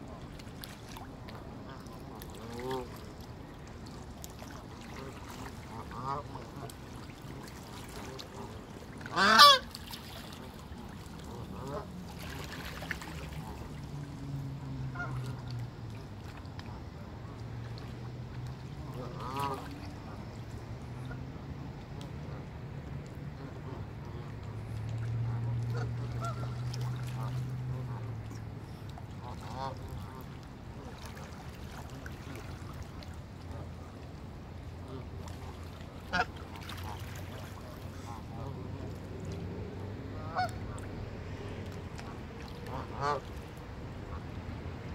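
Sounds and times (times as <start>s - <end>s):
low steady hum: 0.0s - 44.9s
geese honking: 5.7s - 6.7s, 8.1s - 9.8s, 14.9s - 15.4s, 18.9s - 19.9s, 25.7s - 28.1s, 36.0s - 38.5s, 40.2s - 40.8s, 42.6s - 43.3s
geese calling: 9.1s - 9.8s, 25.7s - 28.0s, 36.1s - 37.0s, 40.2s - 40.6s, 42.6s - 43.3s.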